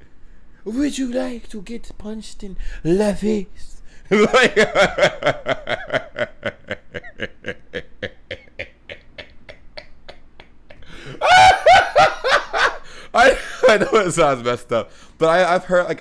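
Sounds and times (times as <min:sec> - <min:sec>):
man laughing hard: 0:04.1 - 0:14.0.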